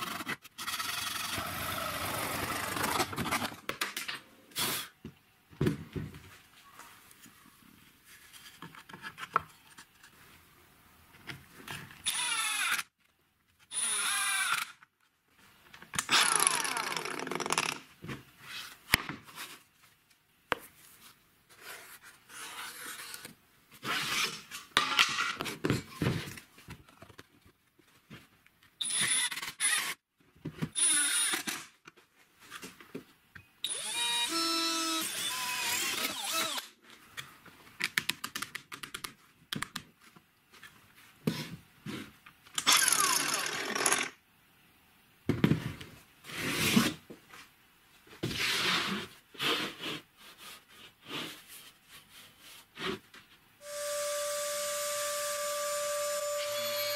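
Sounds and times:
cordless drill drilling plastic: 12.1 - 12.8, 33.7 - 36.7.

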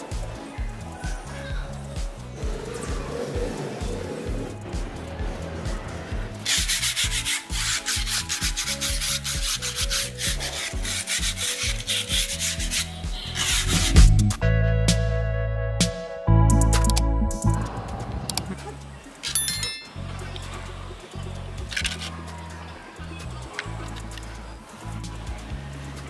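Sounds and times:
sandpaper scraping cement: 6.4 - 14.3.

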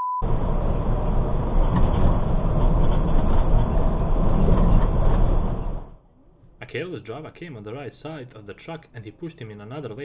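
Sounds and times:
road rumble: 0.2 - 6.0
truck engine drone: 0.2 - 6.0.

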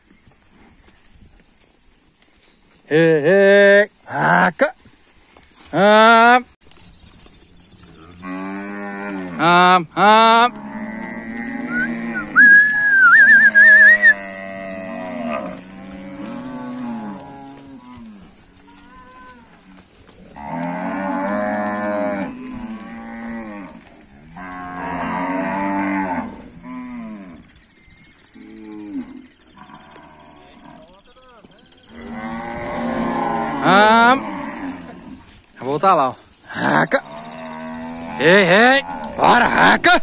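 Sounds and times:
cattle mooing: 7.9 - 27.5, 28.4 - 31.0, 31.8 - 35.3, 36.5 - 40.0
high warbling whistle: 11.7 - 14.2.

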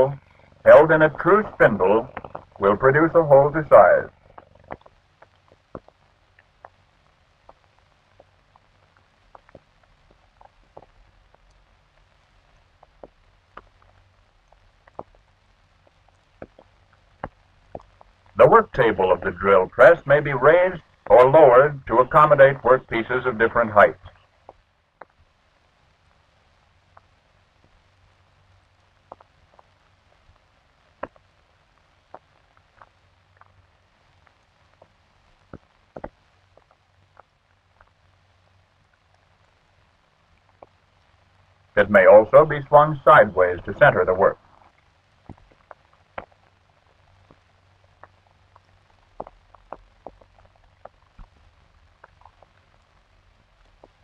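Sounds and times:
faint hum and hiss: 0.0 - 54.0
film clicks and pops: 4.2 - 18.4, 29.0 - 38.0, 44.6 - 54.0.

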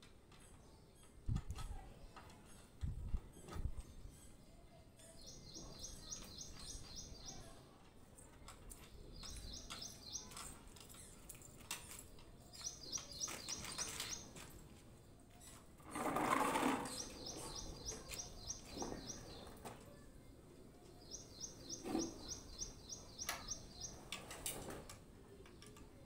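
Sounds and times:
bird chirping: 2.1 - 7.6, 8.2 - 20.0, 20.7 - 24.9.

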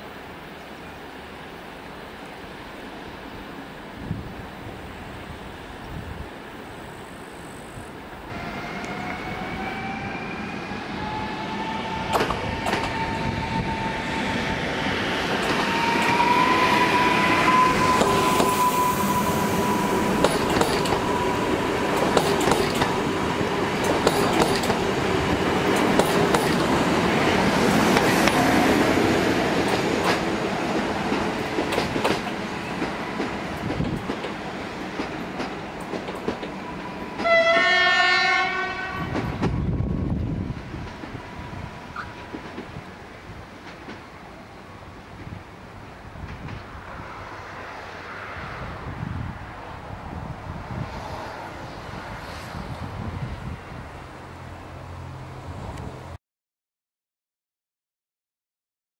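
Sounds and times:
wheels clicking over rail joints: 20.2 - 21.1, 21.9 - 23.0, 23.8 - 24.9
train horn blast: 37.2 - 39.4.

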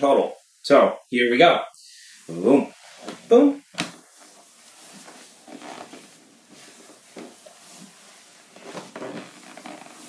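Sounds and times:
socked feet scuffing on wooden floor: 2.9 - 10.0.

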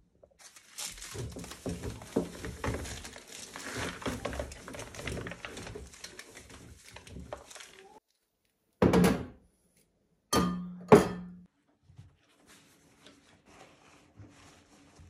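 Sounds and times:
paper towel rustling: 0.3 - 8.0, 11.5 - 15.0.

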